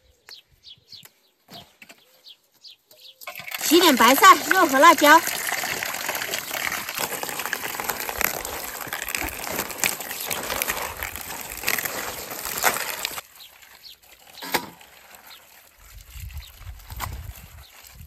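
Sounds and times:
tap water splashing onto leaves: 0:03.2 - 0:13.2
leaves being rubbed: 0:03.7 - 0:18.0.

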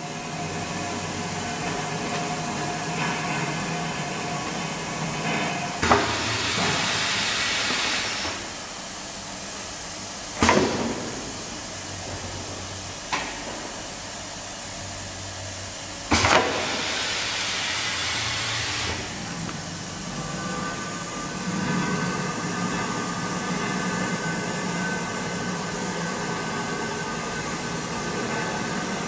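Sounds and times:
low running hum: 0:08.4 - 0:29.0.

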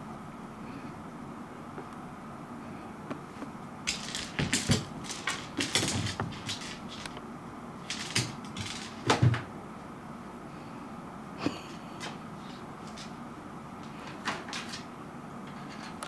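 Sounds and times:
seed skittering on wooden floor: 0:03.9 - 0:07.2.

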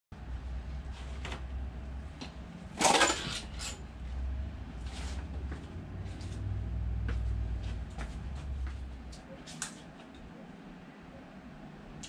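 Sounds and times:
low steady hum: 0:00.2 - 0:12.0
metal engine parts clanking: 0:02.7 - 0:03.9.

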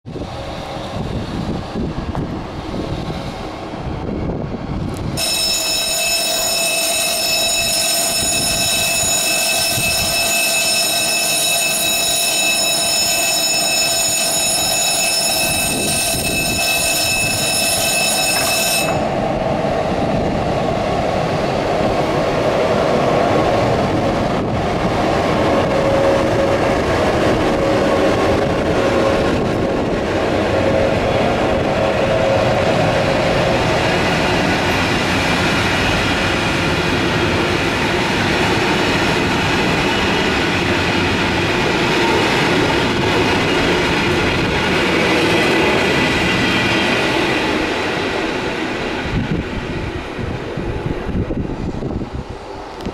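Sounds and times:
train rumbling past: 0:00.1 - 0:52.9
level crossing bell ringing: 0:05.2 - 0:19.1.

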